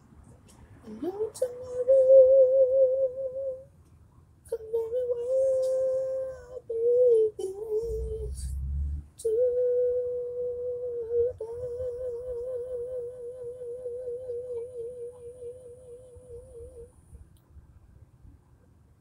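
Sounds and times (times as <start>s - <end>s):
person singing long note: 9.2s - 16.9s.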